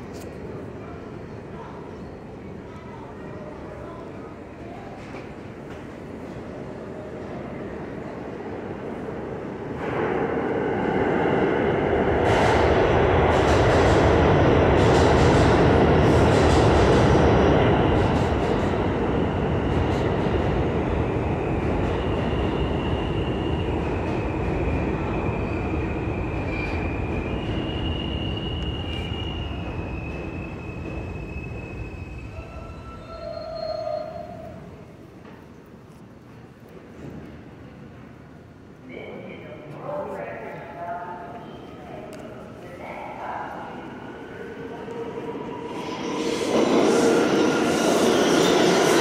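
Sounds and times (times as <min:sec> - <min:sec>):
subway train clattering on rails: 0:00.0 - 0:49.0
high-pitched wheel squeals: 0:26.4 - 0:34.6.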